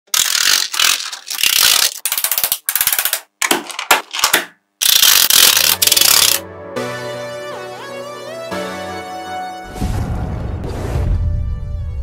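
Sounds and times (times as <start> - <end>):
magnetic balls clicking and rattling: 0.1 - 6.4.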